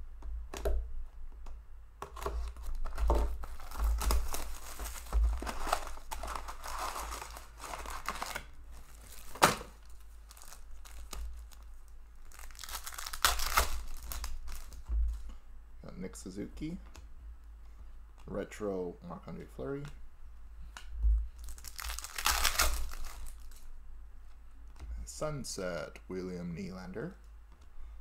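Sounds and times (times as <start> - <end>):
wrapper tearing: 2.2 - 14.9, 21.4 - 23.7
foil packs crinkling and rustling: 2.2 - 15.2, 21.4 - 23.7.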